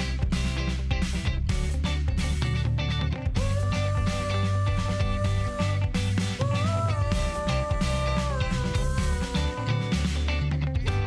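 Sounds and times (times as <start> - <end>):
guitar-led music with beat: 0.0 - 11.0.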